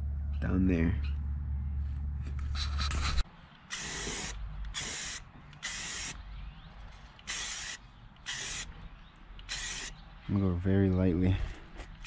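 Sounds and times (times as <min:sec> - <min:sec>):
low hum: 0:00.0 - 0:03.6
spray paint can hissing: 0:03.7 - 0:06.2, 0:07.2 - 0:08.7, 0:09.4 - 0:09.9.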